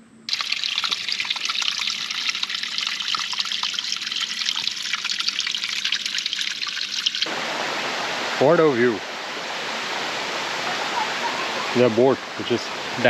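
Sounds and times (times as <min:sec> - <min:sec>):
stream trickling over rocks: 0:00.3 - 0:07.4.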